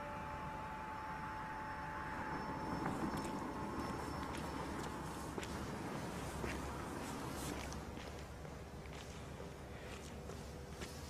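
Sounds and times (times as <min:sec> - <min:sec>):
footsteps on pavement: 0:02.8 - 0:11.0.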